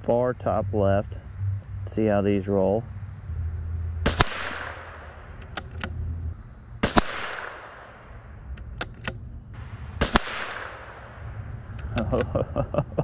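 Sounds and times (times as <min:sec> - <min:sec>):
rifle shots with echo: 0:04.0 - 0:05.7, 0:06.8 - 0:08.6, 0:09.6 - 0:11.6
rifle bolt clicks: 0:04.3 - 0:06.0, 0:08.5 - 0:09.2.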